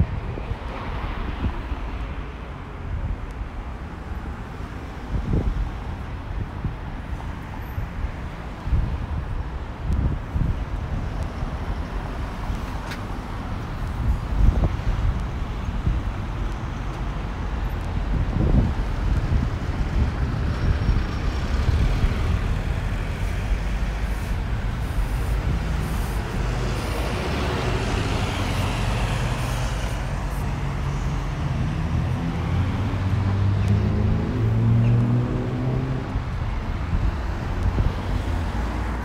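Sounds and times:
traffic engine rumble: 0:00.0 - 0:39.0
vehicle passing: 0:21.2 - 0:36.4.

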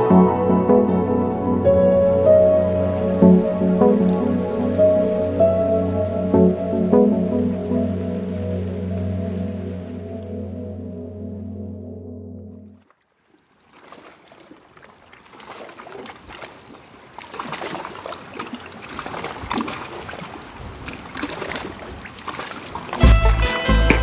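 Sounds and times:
music with deep bass: 0:00.0 - 0:12.7, 0:23.0 - 0:24.0
steady music chord: 0:00.0 - 0:12.8, 0:23.0 - 0:24.0.

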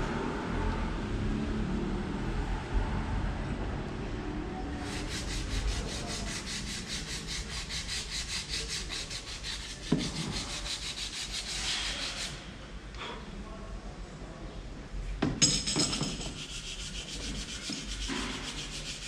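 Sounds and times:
fast scraping strokes: 0:04.7 - 0:12.5, 0:16.0 - 0:19.0.

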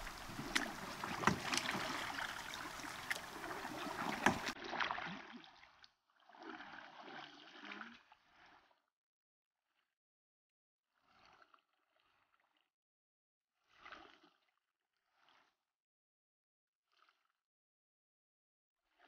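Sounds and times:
canoe paddles splashing in water: 0:00.0 - 0:05.4
small waves lapping: 0:00.0 - 0:05.5.

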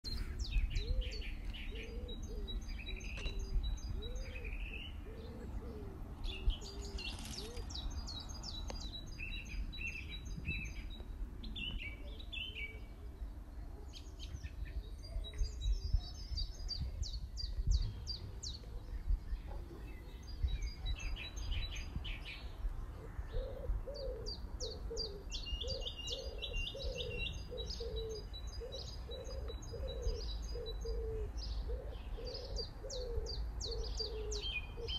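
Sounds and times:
low cooing call: 0:00.1 - 0:08.0, 0:22.9 - 0:34.9
birds chirping and trilling: 0:00.1 - 0:34.9.

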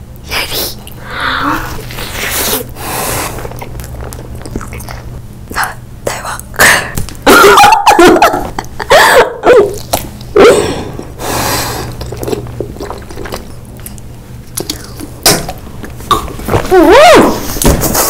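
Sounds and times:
mouth smacking: 0:11.8 - 0:16.7.

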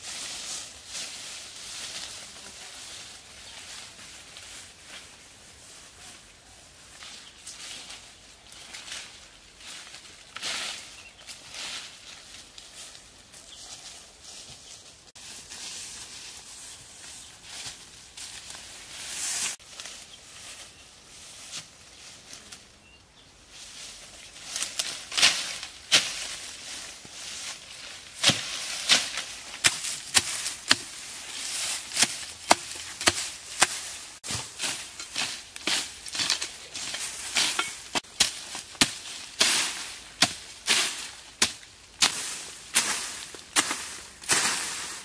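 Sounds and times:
grass and leaves rustling: 0:00.0 - 0:45.0
hand tool chopping into soil: 0:28.2 - 0:44.7
blade slashing through grass: 0:28.2 - 0:45.0.

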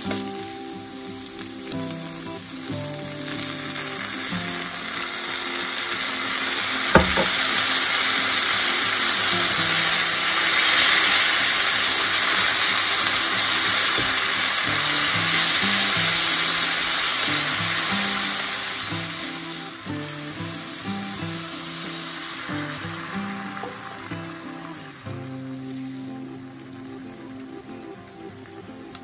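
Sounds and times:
background music: 0:00.0 - 0:29.0
oil sizzling in a frying pan: 0:00.0 - 0:29.0
knock on the pan: 0:07.0 - 0:07.6, 0:14.0 - 0:14.2.

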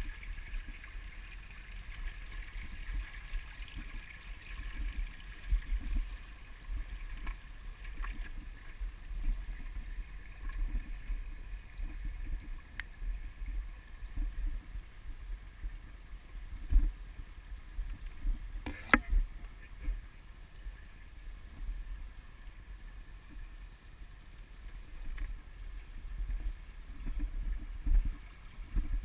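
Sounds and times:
water trickling: 0:00.0 - 0:14.7.

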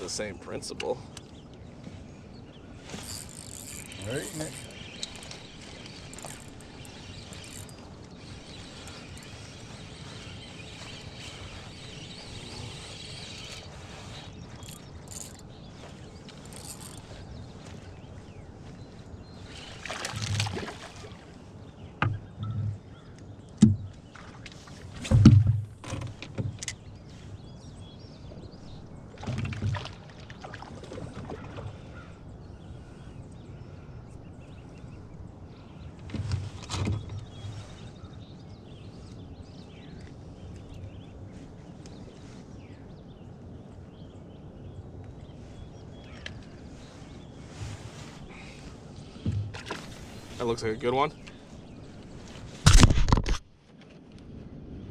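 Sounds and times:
water splashing: 0:19.6 - 0:21.4
canoe hull knocking: 0:49.2 - 0:49.9.

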